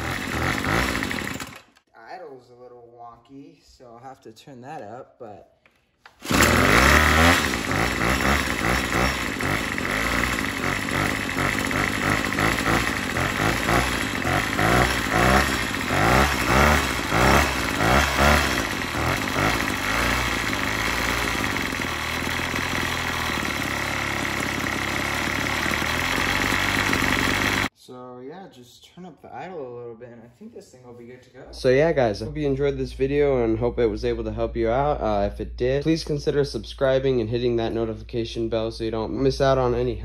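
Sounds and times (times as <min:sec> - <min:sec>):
string trimmer engine revving: 0:00.0 - 0:01.8, 0:06.1 - 0:27.7.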